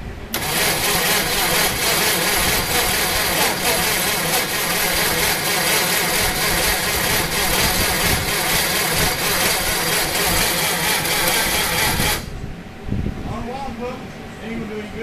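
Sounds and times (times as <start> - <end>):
engine cranking without firing: 0.3 - 12.3.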